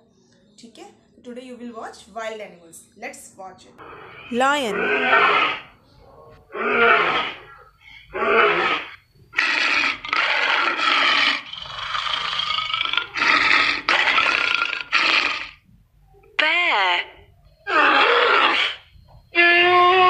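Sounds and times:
lion roaring: 3.8s - 5.8s, 6.5s - 15.6s, 16.4s - 18.8s.

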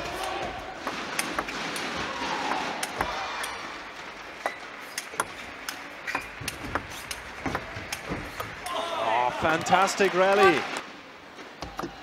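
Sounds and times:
ping pong ball hitting bats: 0.2s - 3.6s, 4.3s - 8.7s.

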